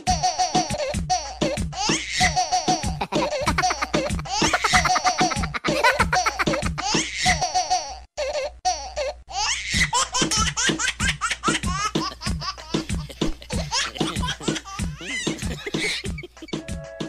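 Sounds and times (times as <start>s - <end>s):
music with steady beat: 0.0s - 7.0s, 9.8s - 17.0s
people laughing hard: 2.8s - 6.9s, 11.5s - 16.6s.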